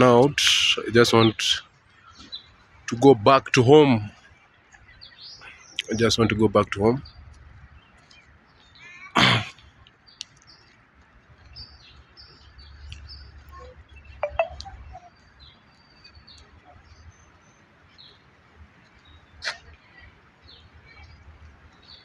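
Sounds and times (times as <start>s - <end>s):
birds chirping: 0.0s - 22.0s
sound with falling pitch: 14.2s - 14.7s.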